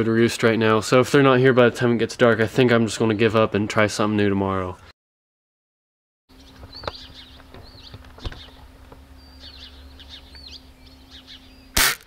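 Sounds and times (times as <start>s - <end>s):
small birds chirping: 6.3s - 11.8s
steady low hum: 6.3s - 12.0s
bb gun shot: 11.8s - 12.0s.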